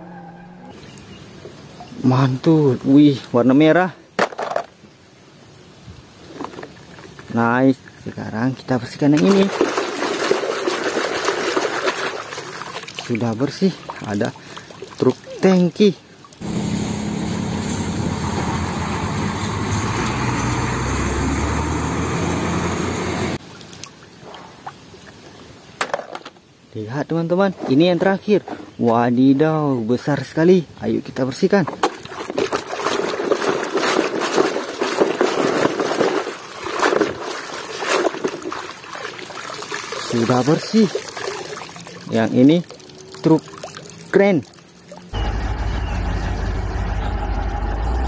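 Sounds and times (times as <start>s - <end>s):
water sloshing in plastic basin: 9.2s - 15.5s, 31.6s - 45.1s
diesel truck engine running: 16.4s - 23.4s, 45.2s - 48.0s.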